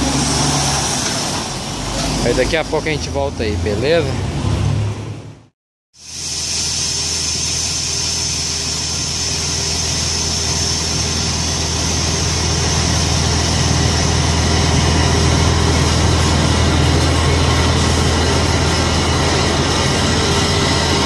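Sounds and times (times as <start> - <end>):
high whine: 6.0 - 21.0
diesel truck engine running: 6.4 - 21.0.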